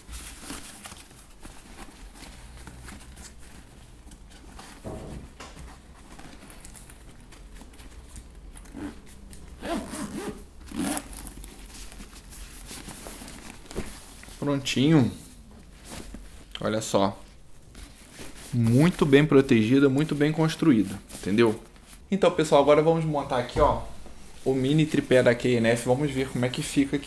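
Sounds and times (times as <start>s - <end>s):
fabric rustling: 0.0s - 27.0s
backpack zipper rasping: 8.6s - 11.4s.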